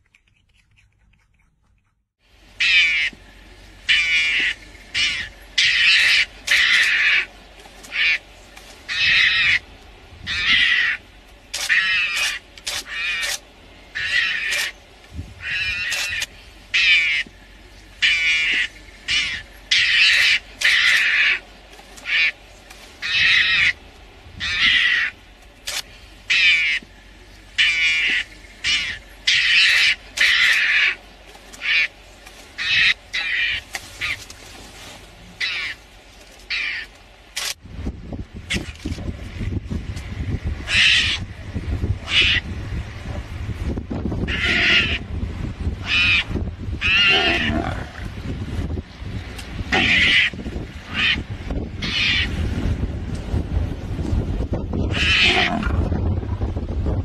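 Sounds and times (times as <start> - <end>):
mongoose harsh alarm calls: 2.6 - 3.2, 3.8 - 7.3, 7.9 - 8.3, 8.9 - 11.0, 11.6 - 14.8, 15.4 - 17.3, 18.0 - 22.4, 23.0 - 23.8, 24.4 - 26.9, 27.6 - 31.0, 31.6 - 32.0, 32.6 - 34.2, 35.4 - 35.8, 36.5 - 37.5, 40.6 - 41.3, 42.0 - 42.5, 44.2 - 45.1, 45.8 - 48.1, 49.7 - 52.4, 54.8 - 55.8.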